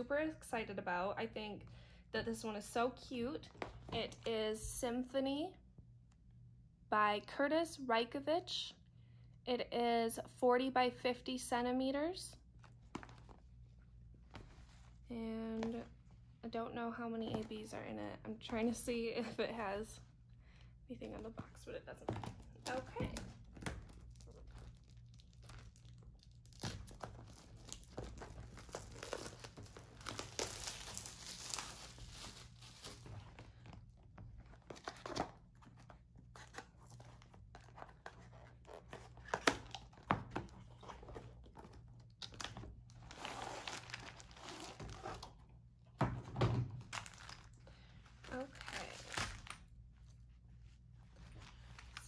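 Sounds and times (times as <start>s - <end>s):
packaging crinkling and tearing: 22.6s - 33.5s, 40.8s - 45.4s, 46.8s - 49.7s.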